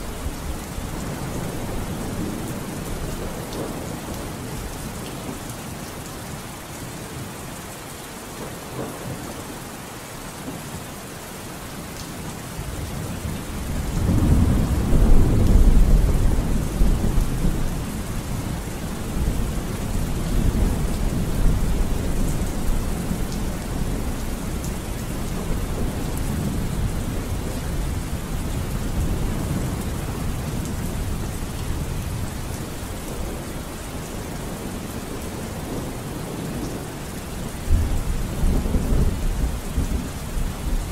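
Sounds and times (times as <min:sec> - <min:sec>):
steady rain: 0:00.0 - 0:40.9
low roll of thunder: 0:12.7 - 0:33.5, 0:37.7 - 0:40.9.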